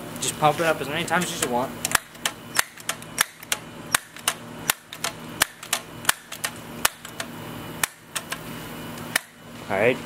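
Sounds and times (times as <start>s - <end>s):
air rifle pump clacking: 1.2s - 8.4s.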